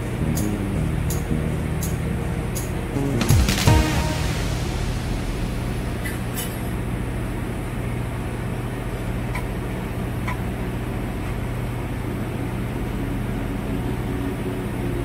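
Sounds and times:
low steady hum: 0.0 - 15.0
welding arc hissing: 3.2 - 6.8.

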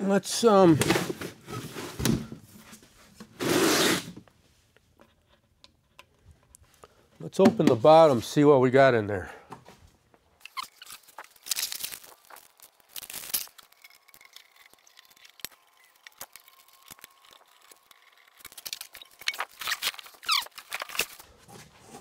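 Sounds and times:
plastic packaging rustling: 10.4 - 22.0.

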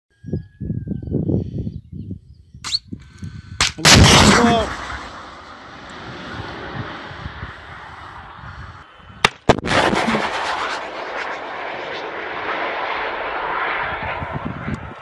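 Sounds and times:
sharp launch bangs: 3.6 - 8.5, 9.2 - 14.4
missile motor rushing: 9.5 - 14.6.

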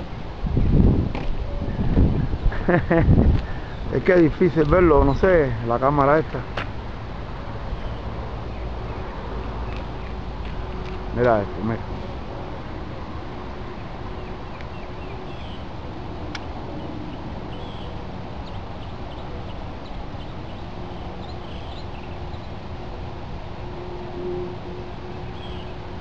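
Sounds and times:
small birds chirping: 7.7 - 10.9, 13.7 - 22.6, 25.2 - 25.8.

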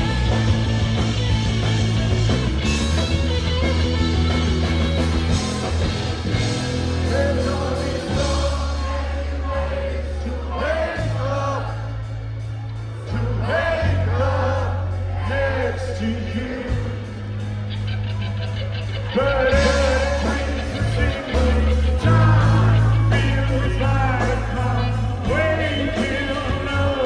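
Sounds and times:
live rock band playing: 0.0 - 27.0
man singing: 6.4 - 11.9, 13.1 - 17.2, 19.0 - 27.0.

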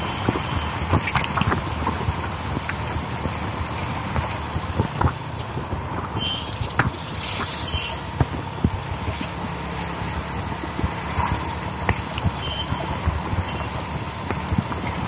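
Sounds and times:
road and wind noise: 0.0 - 15.0
motorbike engine running: 7.9 - 15.0.

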